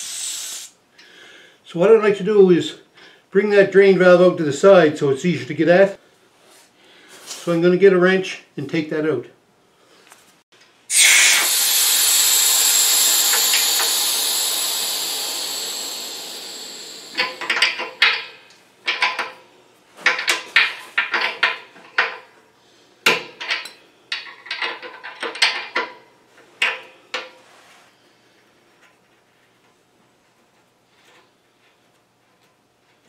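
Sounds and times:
compressed air hissing: 0.0s - 0.8s, 10.9s - 18.4s.

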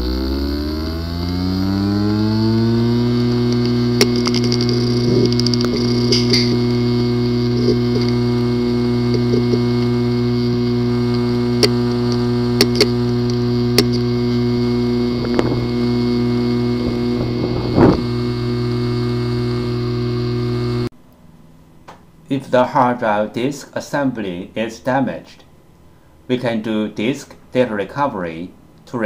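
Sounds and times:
steady hum: 0.0s - 27.1s
hard drive rattle: 2.8s - 20.9s
hard drive clicking: 2.9s - 20.9s.

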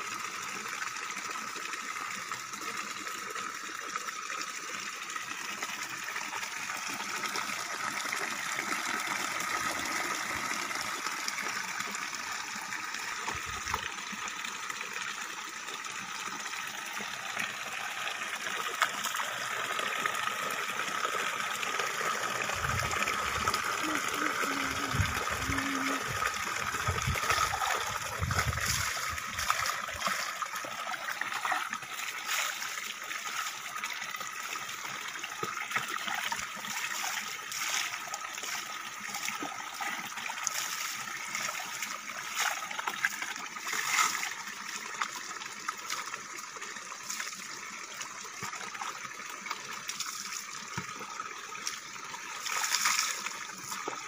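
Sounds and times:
water poured over person: 22.2s - 34.3s, 35.3s - 45.1s, 51.7s - 54.0s
water splashing into bucket: 22.2s - 47.4s, 48.3s - 54.0s.

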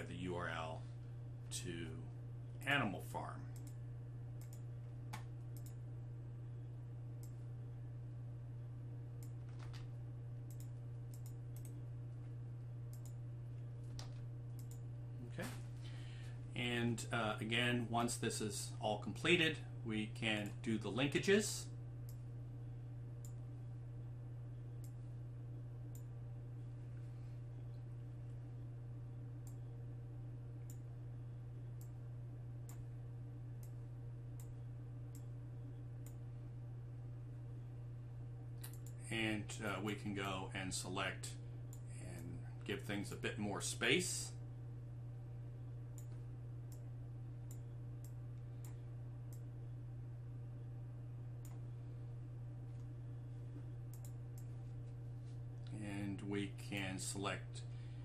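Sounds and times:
low electrical hum: 0.0s - 58.0s
computer mouse clicking: 4.4s - 5.8s, 10.5s - 11.8s, 12.9s - 13.2s, 53.9s - 54.5s.

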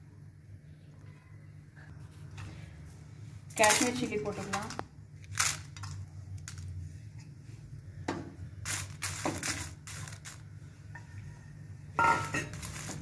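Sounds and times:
spatula scraping chillies in pan: 8.6s - 10.5s.

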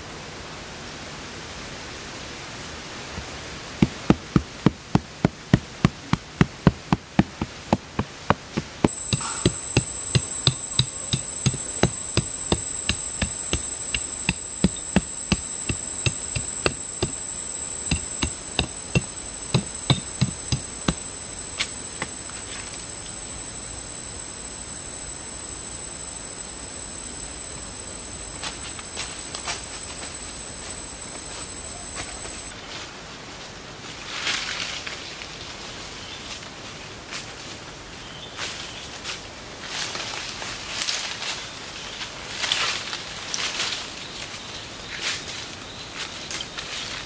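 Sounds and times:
high insect drone: 3.8s - 32.5s.

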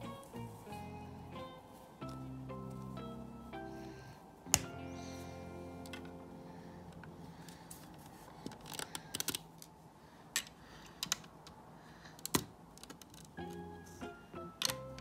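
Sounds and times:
plastic bricks clicking: 8.4s - 9.7s, 12.2s - 13.4s.

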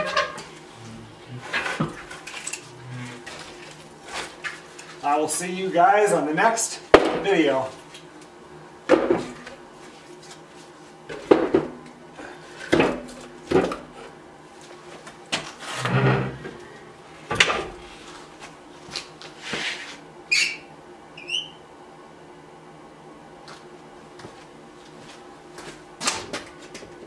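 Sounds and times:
short high squeaks: 20.3s - 21.6s.

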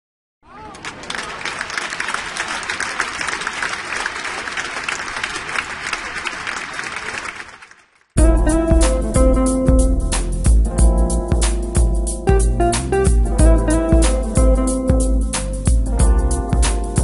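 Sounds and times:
crowd applauding: 0.4s - 8.2s.

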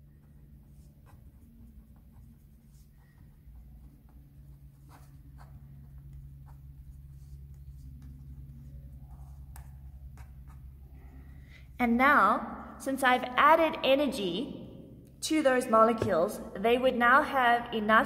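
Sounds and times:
low steady hum: 0.0s - 18.0s
marker scratching on paper: 0.2s - 11.1s.

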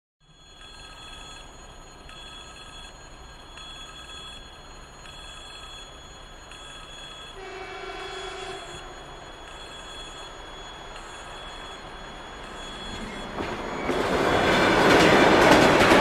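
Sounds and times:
level crossing warning bell: 0.2s - 16.0s
train horn: 7.4s - 8.9s.

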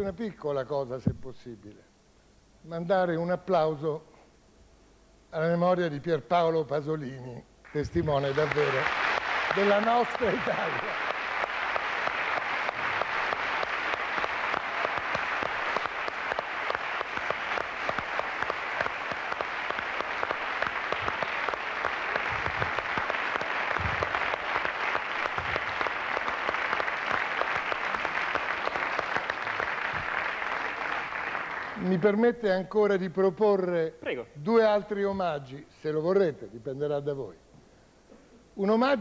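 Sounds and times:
audience applauding: 7.7s - 32.2s.

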